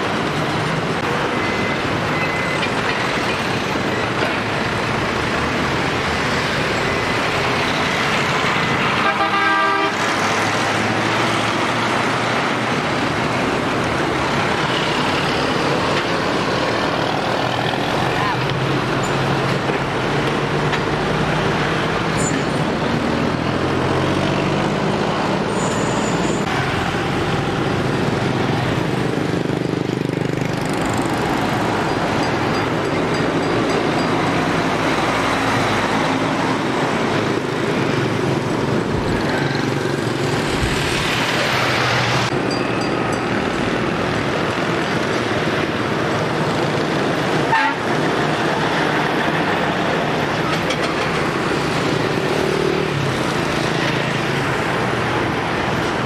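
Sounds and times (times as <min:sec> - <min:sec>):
lorries passing: 0:00.0 - 0:56.0
motorbikes: 0:00.0 - 0:56.0
horn toots: 0:09.0 - 0:10.1, 0:47.5 - 0:47.9.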